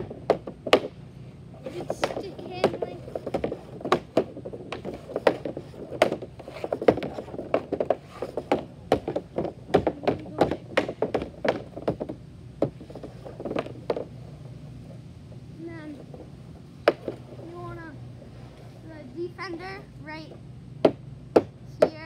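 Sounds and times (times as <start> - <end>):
hockey stick and puck clacking: 0.0 - 1.0, 1.6 - 14.2, 16.9 - 17.4.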